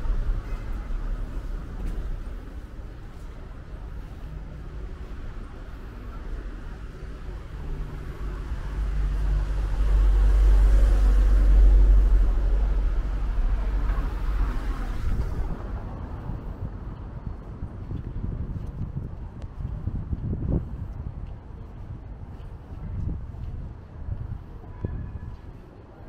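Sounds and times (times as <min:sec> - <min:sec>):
truck driving past rumbling: 0:06.7 - 0:16.8.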